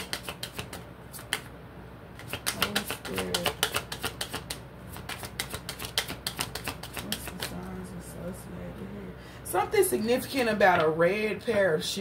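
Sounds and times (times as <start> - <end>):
cards being shuffled: 0.0 - 1.5, 2.2 - 7.6.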